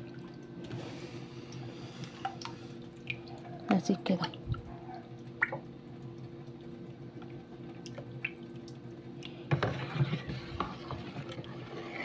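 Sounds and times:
cup sloshing in liquid: 9.3 - 12.0.

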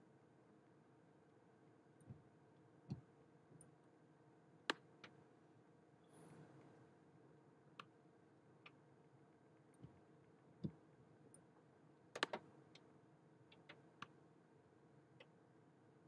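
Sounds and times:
faint computer mouse clicks: 12.2 - 12.9.

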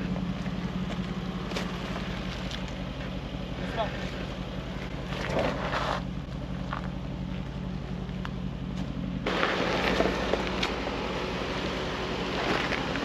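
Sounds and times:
engine turning slowly: 0.0 - 13.0
tyres crunching on stones: 0.0 - 13.0.

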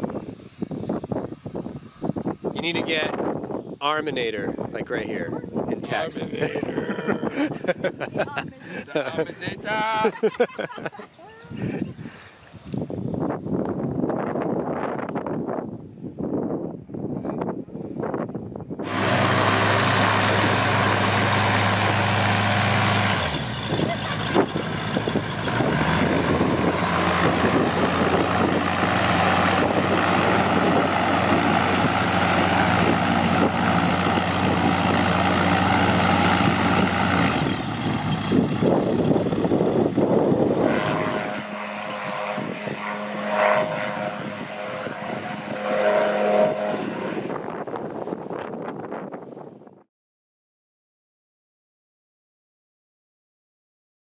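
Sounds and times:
aircraft engine and propeller drone: 0.0 - 12.2, 18.8 - 48.3.

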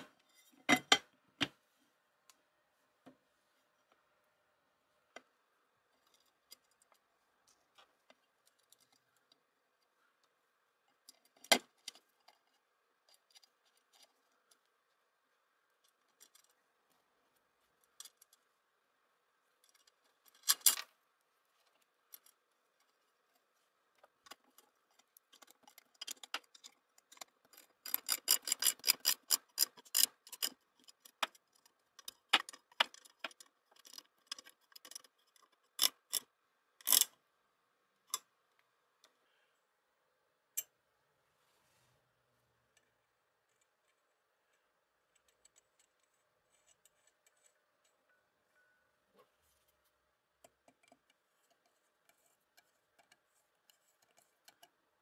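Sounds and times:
small metal clicks and taps: 24.0 - 37.2, 43.5 - 48.2, 50.4 - 54.8.

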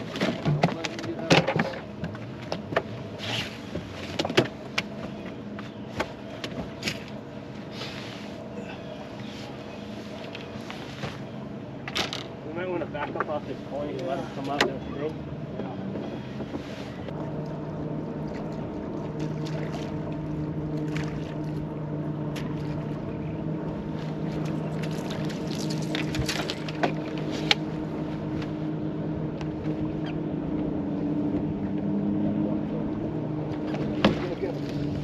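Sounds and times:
water lapping on hull: 0.0 - 35.0
electric trolling motor hum: 17.0 - 35.0.

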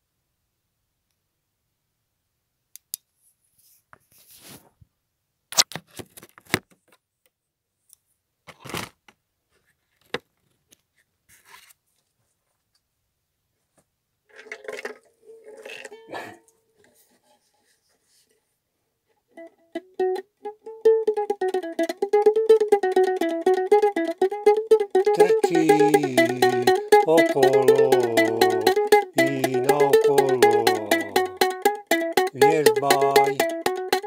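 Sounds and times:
ukulele string ringing: 20.0 - 34.0.

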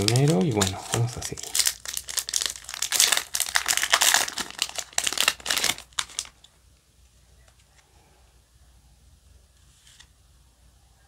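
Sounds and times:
foil wrapper crinkling and tearing: 0.0 - 6.5.

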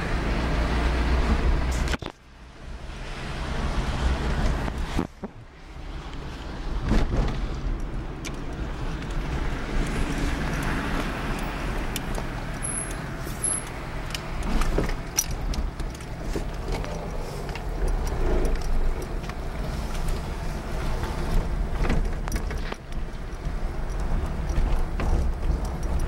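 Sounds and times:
road noise: 0.0 - 26.0
scattered clicks: 7.6 - 26.0.

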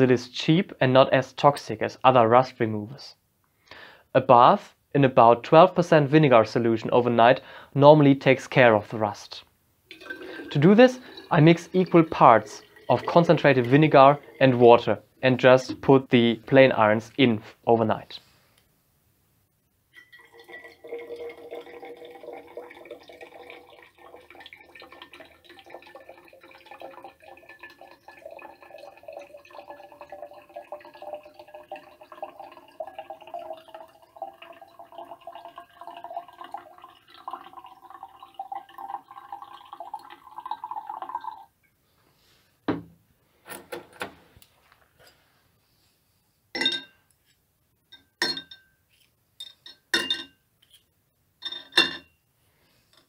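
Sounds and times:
liquid pouring into glass bottle: 9.9 - 16.1, 19.9 - 41.5
metal clinking on glass: 20.0 - 21.2, 46.6 - 47.0, 47.9 - 48.8, 49.4 - 50.8, 51.4 - 52.2.

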